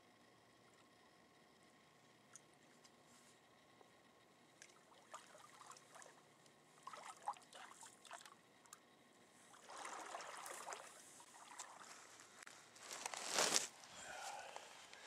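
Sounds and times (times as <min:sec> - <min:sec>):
water trickling and splashing: 0:04.7 - 0:06.2, 0:09.6 - 0:12.0.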